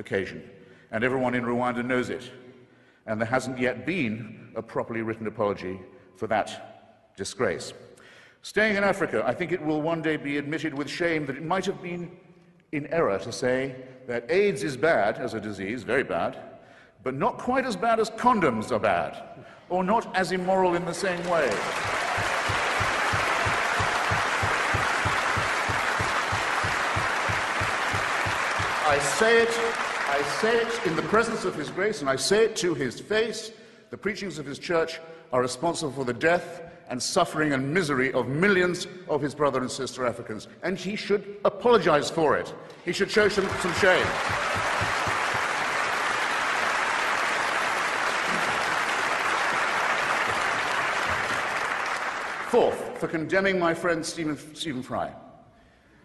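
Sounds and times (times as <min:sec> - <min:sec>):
audience applauding: 0:21.0 - 0:31.7, 0:43.2 - 0:52.5.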